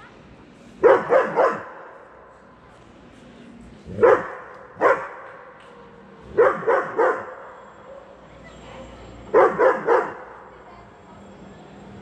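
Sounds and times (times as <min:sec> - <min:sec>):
dog barking: 0:00.8 - 0:01.8, 0:04.0 - 0:05.3, 0:06.4 - 0:07.4, 0:09.3 - 0:10.4.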